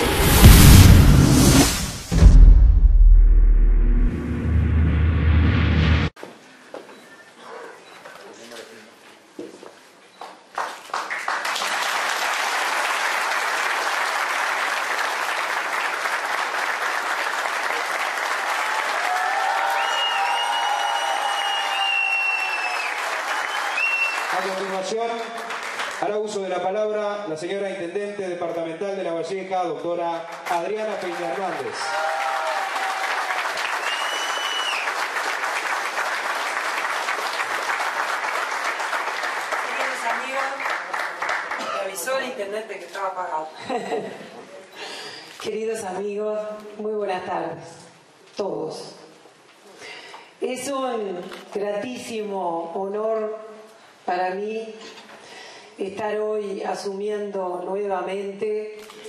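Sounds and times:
audience applauding: 0:10.6 - 0:26.0, 0:30.8 - 0:42.0.

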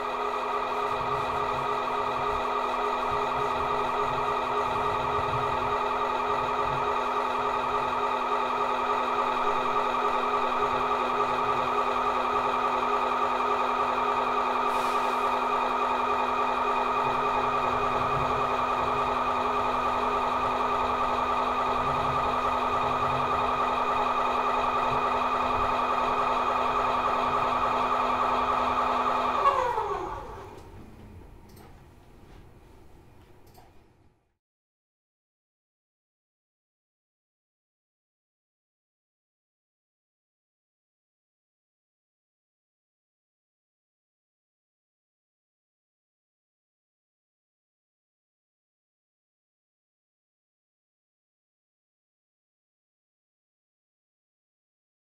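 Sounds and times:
drone of held tones: 0:00.0 - 0:31.6.

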